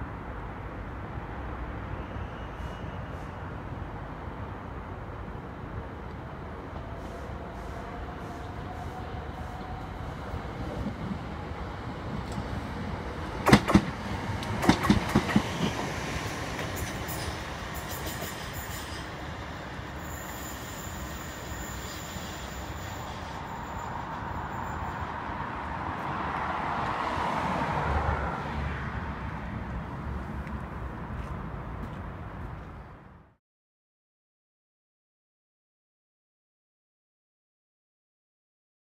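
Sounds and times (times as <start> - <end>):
train rumble: 1.5 - 27.7
train wheels clattering over rail joints: 13.4 - 16.0, 16.6 - 19.1.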